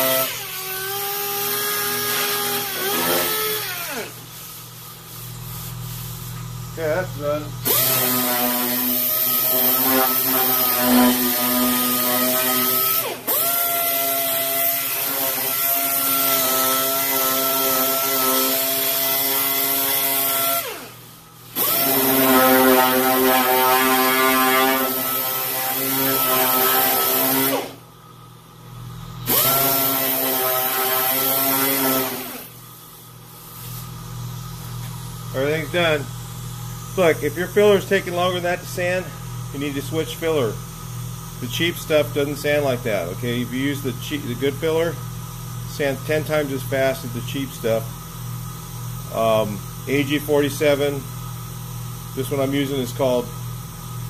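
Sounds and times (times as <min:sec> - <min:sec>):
pneumatic sander whining: 0:00.0 - 0:27.9, 0:29.2 - 0:36.0.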